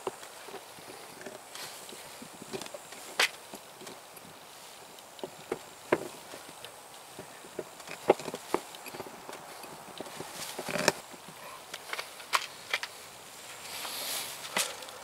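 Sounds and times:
herb leaves rustling: 0.0 - 15.0.

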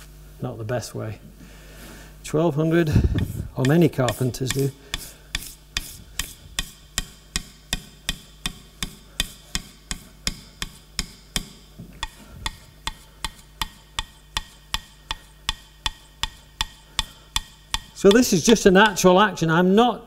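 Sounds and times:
chisel honing on abrasive paper: 3.1 - 19.0.

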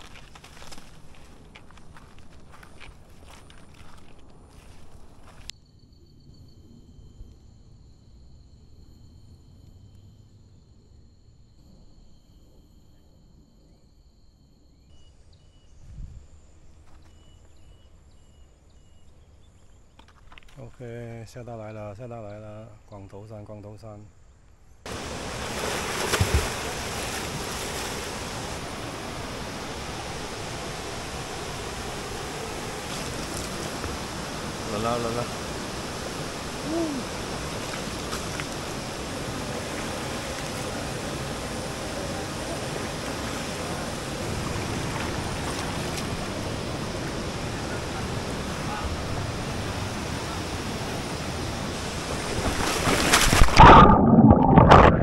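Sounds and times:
flowing water rushing: 24.9 - 55.0.

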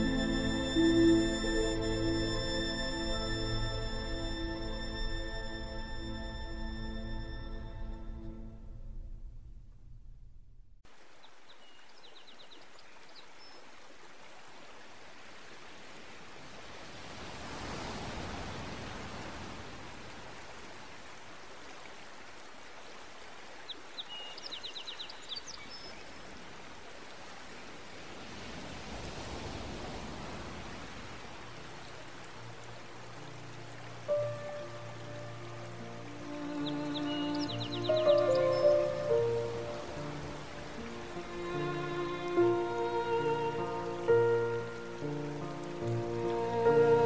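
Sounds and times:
flowing water rushing: 0.0 - 8.4, 10.9 - 47.0.

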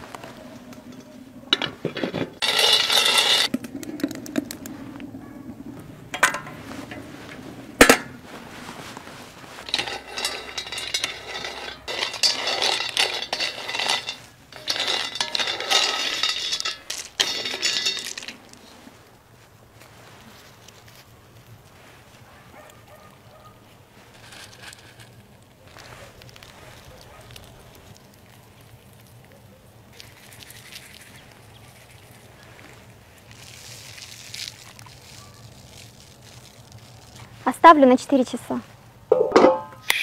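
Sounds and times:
nuts rattling in a metal wok: 2.4 - 4.1, 9.6 - 18.6.

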